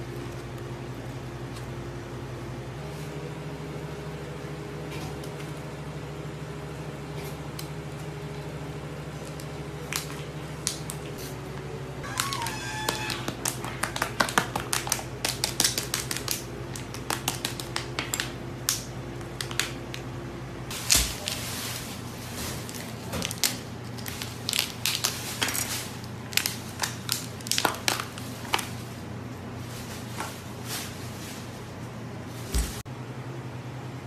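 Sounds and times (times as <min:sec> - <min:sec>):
steady low hum: 0:00.0 - 0:12.4.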